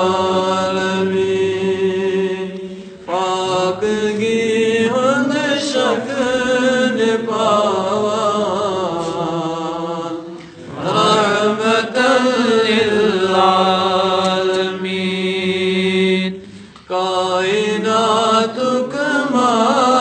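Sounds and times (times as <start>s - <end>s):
man chanting: 0.0s - 16.4s.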